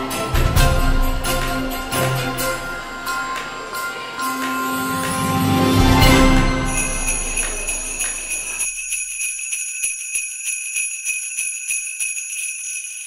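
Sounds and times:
music: 0.0s - 8.7s
sleigh bells shaking: 0.0s - 13.0s.

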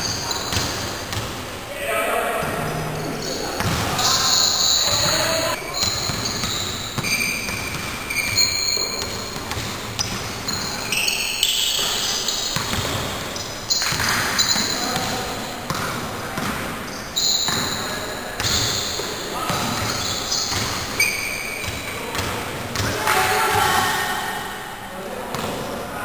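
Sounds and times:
basketball bouncing on court: 0.3s - 1.4s, 2.4s - 10.6s, 11.8s - 16.6s, 17.5s - 17.8s, 18.4s - 21.0s, 21.6s - 23.0s.

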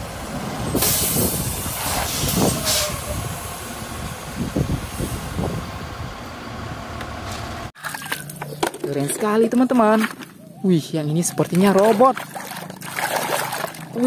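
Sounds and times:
garbage truck diesel engine running: 0.0s - 7.7s
air hiss: 0.8s - 3.5s.

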